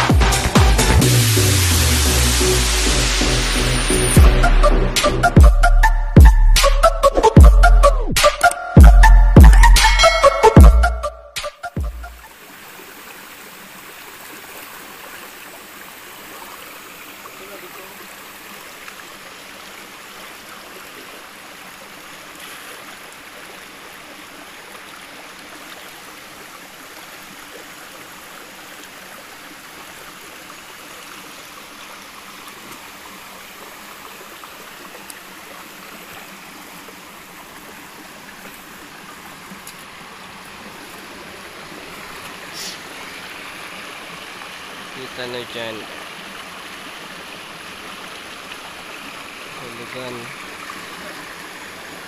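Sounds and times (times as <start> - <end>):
stream splashing over stones: 12.2 - 52.0.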